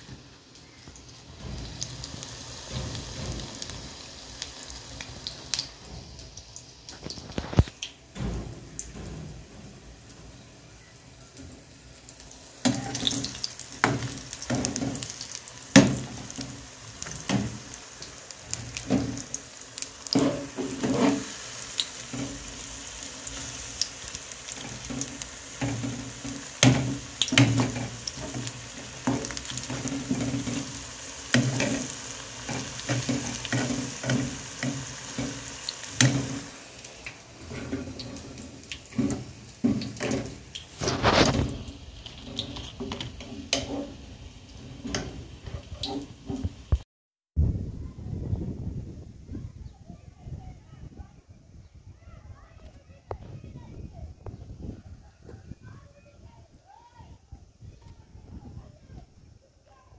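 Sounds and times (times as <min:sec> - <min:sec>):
food sizzling in oil: 0:00.0 - 0:46.8
metal spatula scraping pan: 0:20.1 - 0:21.4, 0:37.4 - 0:44.0.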